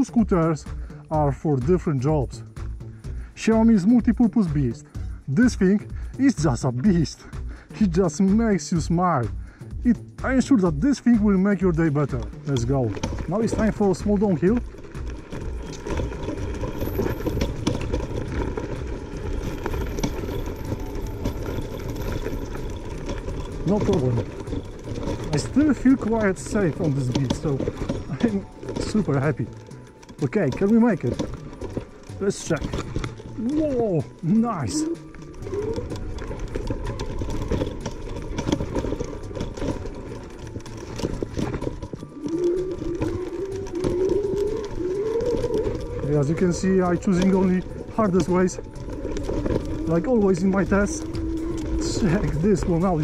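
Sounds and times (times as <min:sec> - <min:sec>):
electric scooter rumbling: 0:00.0 - 0:53.0
rattling and knocking over bumps: 0:00.0 - 0:53.0
electric motor whine: 0:14.0 - 0:53.0.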